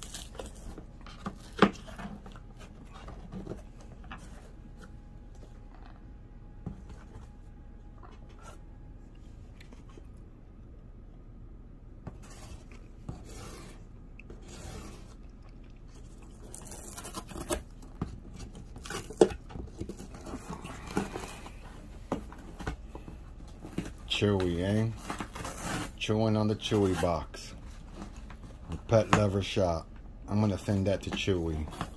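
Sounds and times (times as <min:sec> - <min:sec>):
parrot tearing cardboard: 0:00.0 - 0:04.9, 0:12.1 - 0:29.3.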